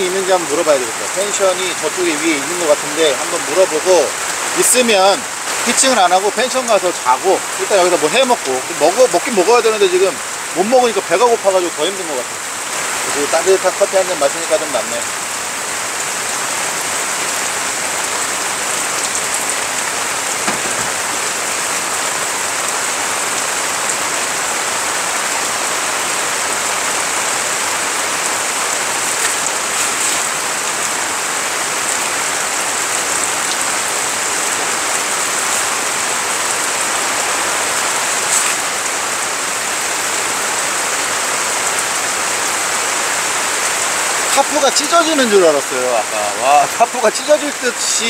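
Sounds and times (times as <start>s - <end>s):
rain on gravel and tarp: 0.0s - 48.0s
rain drop taps: 4.6s - 6.8s, 19.0s - 21.2s.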